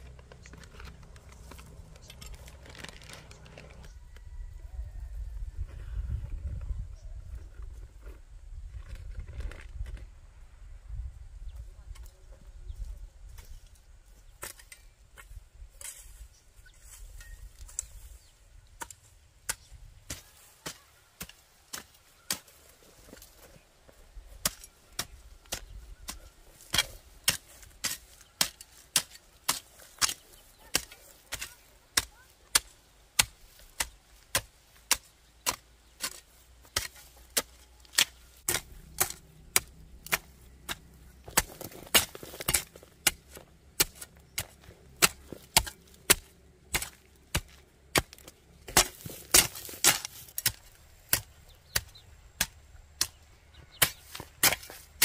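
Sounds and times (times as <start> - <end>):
hoe chopping into dry soil: 18.8 - 55.0.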